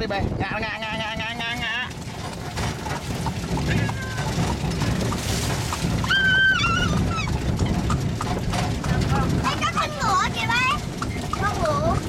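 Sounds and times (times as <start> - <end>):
carriage rumbling and rattling: 0.0 - 12.0
hooves clattering: 0.4 - 12.0.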